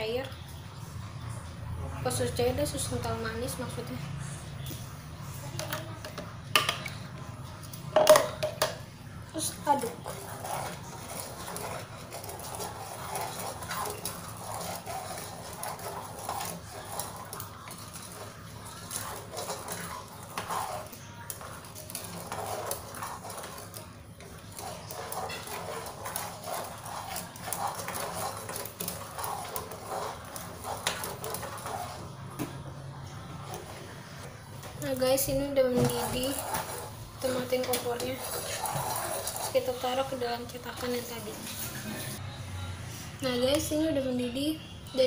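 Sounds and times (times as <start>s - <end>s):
whisk clicking and scraping pan: 5.4s - 42.2s.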